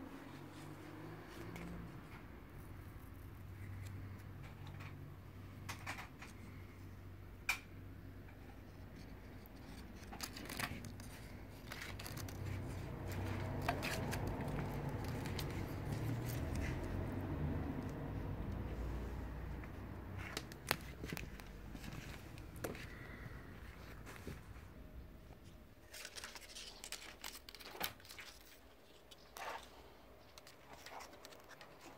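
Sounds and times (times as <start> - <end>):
cord toy clicks and scrapes: 9.0 - 18.0.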